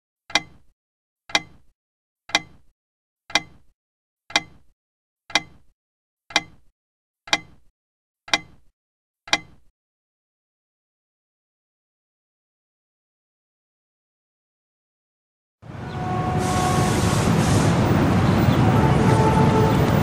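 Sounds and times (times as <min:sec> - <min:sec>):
sharp mechanical ticks: 0:03.3 - 0:03.6, 0:04.3 - 0:04.6, 0:05.3 - 0:05.6, 0:06.3 - 0:06.6.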